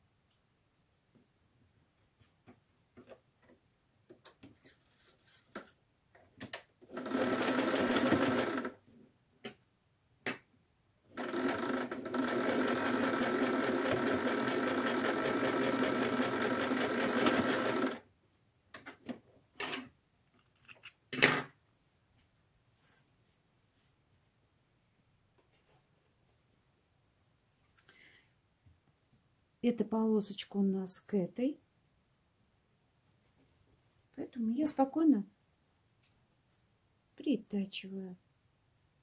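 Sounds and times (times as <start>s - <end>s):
sewing machine stitching: 6.8s - 8.8s, 11.1s - 18.0s.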